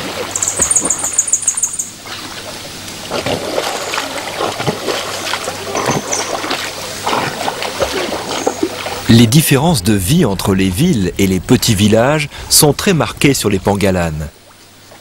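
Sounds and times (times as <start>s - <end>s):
water splashing: 0.0s - 10.1s.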